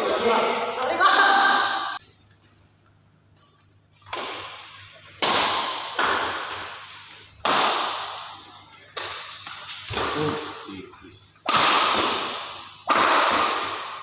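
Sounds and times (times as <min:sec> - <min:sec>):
racket striking shuttlecock: 0:04.0 - 0:10.6, 0:11.4 - 0:14.0.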